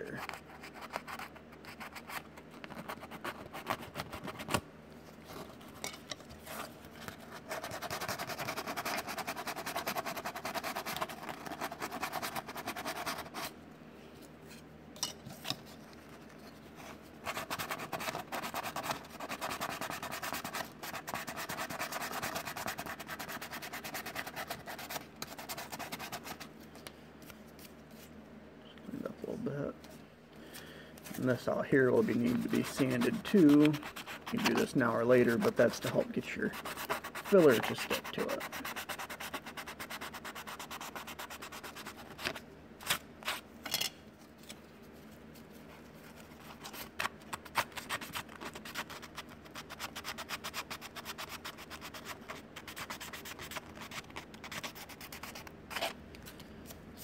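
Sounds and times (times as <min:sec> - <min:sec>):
sandpaper rubbing on plastic: 0:07.4 - 0:13.5, 0:17.3 - 0:26.5, 0:31.9 - 0:42.4, 0:46.5 - 0:55.9.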